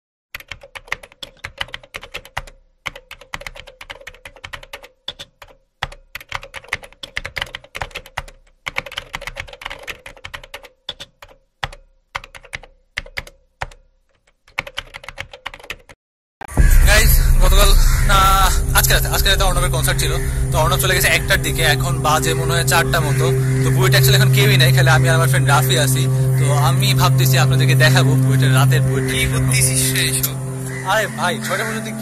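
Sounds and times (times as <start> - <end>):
rapid keyboard key clicks: 0.4 - 16.0.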